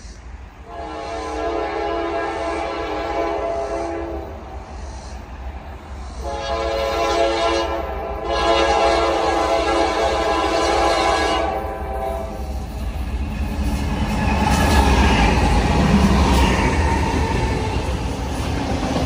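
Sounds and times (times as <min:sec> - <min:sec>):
passing train rumble: 0:00.0 - 0:19.0
locomotive horn blasts: 0:00.6 - 0:04.3, 0:06.2 - 0:12.4.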